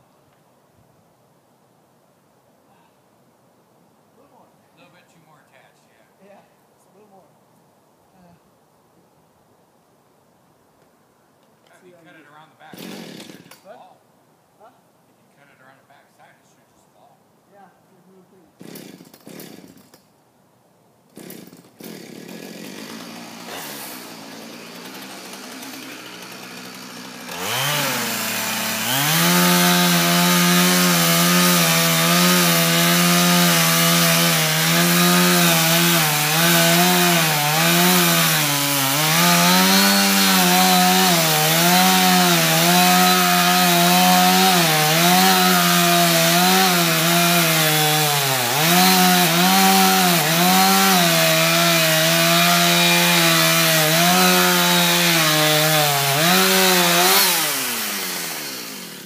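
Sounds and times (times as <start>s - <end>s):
chainsaw cutting into wood: 12.6s - 13.7s, 18.6s - 20.1s, 21.1s - 59.0s.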